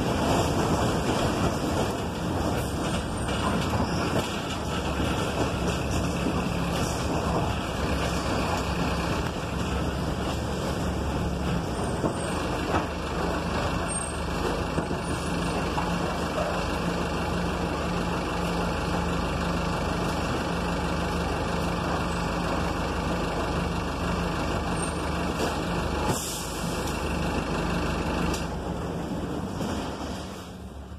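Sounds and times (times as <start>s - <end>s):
bus engine running: 0.0s - 30.9s
air brakes hissing: 24.7s - 27.0s.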